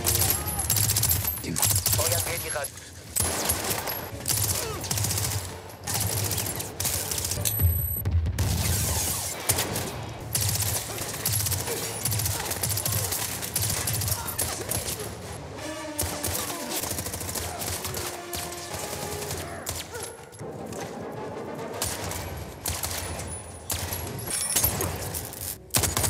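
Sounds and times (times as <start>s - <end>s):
people shouting: 0.0s - 1.0s, 4.4s - 5.0s, 10.9s - 20.0s
rapid automatic gunfire: 0.0s - 2.5s, 3.2s - 7.4s, 8.4s - 15.3s, 16.0s - 20.0s, 21.7s - 24.1s, 25.7s - 26.0s.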